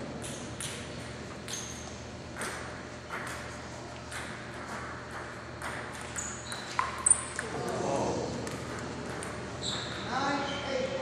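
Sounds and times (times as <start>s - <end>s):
table tennis ball bouncing: 0.2s - 1.8s, 2.4s - 7.8s, 8.4s - 10.0s.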